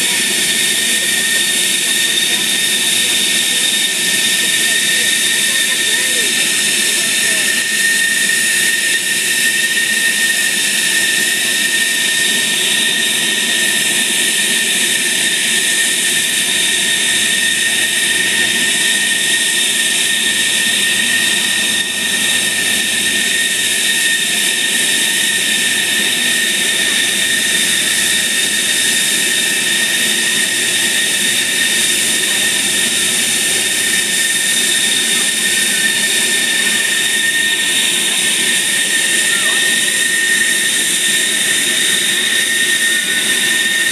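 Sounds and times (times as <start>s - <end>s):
jet engine whine and rush: 0.0s - 43.9s.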